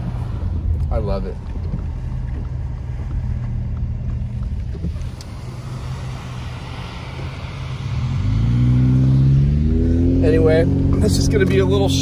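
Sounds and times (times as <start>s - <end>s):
engine and road rumble: 0.0s - 12.0s
tyres hissing on wet road: 4.9s - 9.5s.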